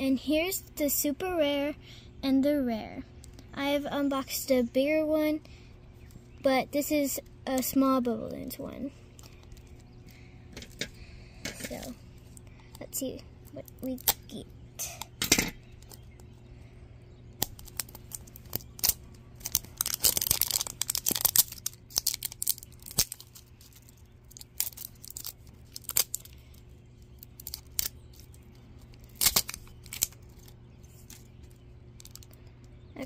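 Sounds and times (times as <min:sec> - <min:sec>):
plastic wrap crinkling and tearing: 0:17.4 - 0:32.4.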